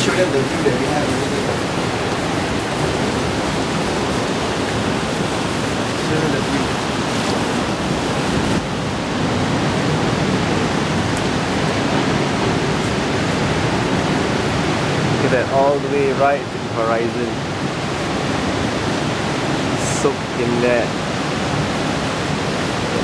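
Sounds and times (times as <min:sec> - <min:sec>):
wind rushing: 0:00.0 - 0:15.3
ocean surf: 0:00.0 - 0:23.0
wind buffeting microphone: 0:00.0 - 0:23.0.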